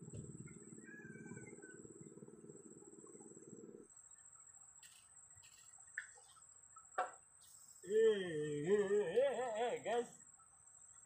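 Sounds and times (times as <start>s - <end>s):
high-pitched whine: 0.0s - 11.0s
person calling out: 7.8s - 10.1s.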